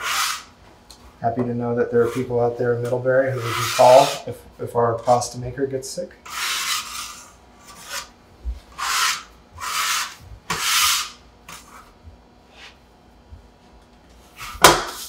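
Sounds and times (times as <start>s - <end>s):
bench scraper on wooden table: 0.0s - 0.5s, 3.4s - 4.2s, 6.3s - 8.1s, 8.8s - 11.8s.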